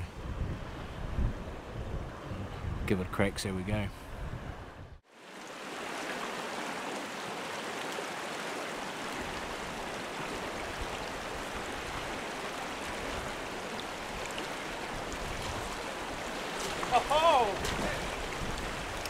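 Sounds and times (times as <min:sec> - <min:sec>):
stream rushing over gravel: 0:05.1 - 0:19.0.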